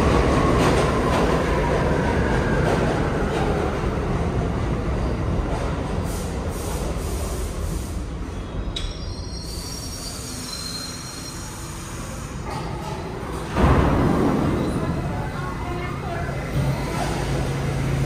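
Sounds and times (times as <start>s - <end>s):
subway train rumbling: 0.0s - 18.0s
train wheel squeal: 8.2s - 12.2s.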